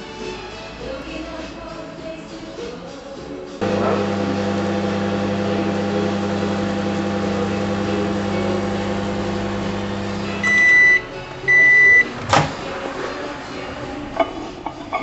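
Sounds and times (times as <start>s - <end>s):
electrical appliance humming: 3.6s - 12.1s.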